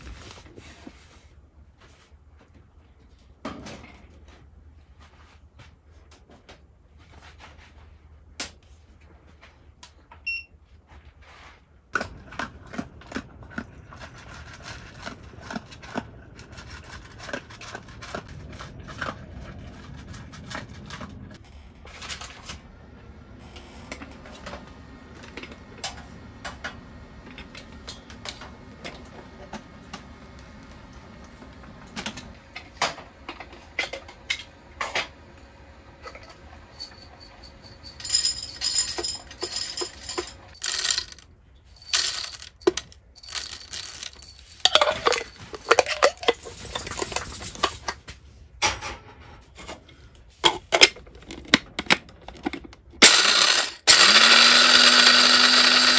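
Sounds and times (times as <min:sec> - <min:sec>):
coffee beans rattling into metal cup: 0:36.8 - 0:41.2, 0:41.8 - 0:48.0, 0:53.0 - 0:55.9.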